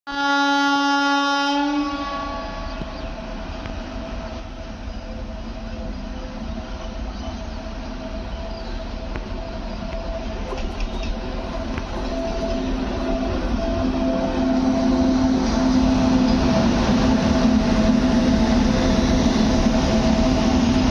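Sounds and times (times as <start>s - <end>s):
train horn blast: 0.1s - 3.0s, 11.4s - 20.9s
locomotives rumbling and whining: 1.1s - 20.9s.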